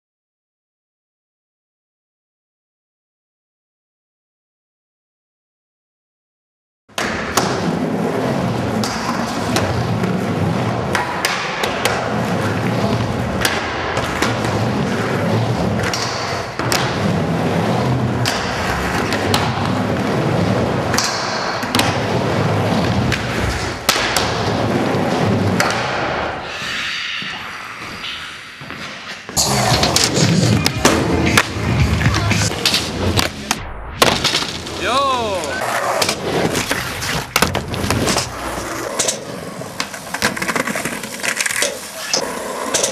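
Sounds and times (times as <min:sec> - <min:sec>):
skateboard wheels rolling on plywood: 0:07.0 - 0:26.4, 0:28.6 - 0:33.6, 0:35.4 - 0:42.9
skateboard knocks and slaps: 0:36.0 - 0:38.3.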